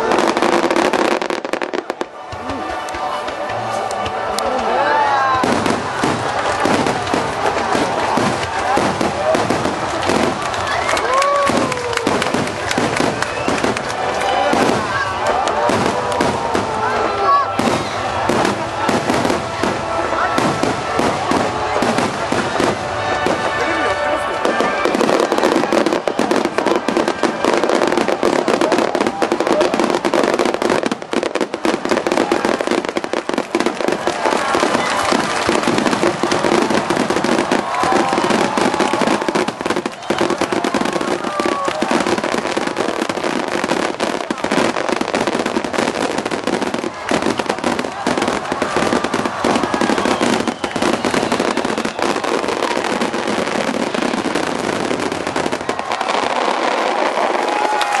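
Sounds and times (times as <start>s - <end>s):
fireworks bursting and crackling: 0.0s - 58.0s.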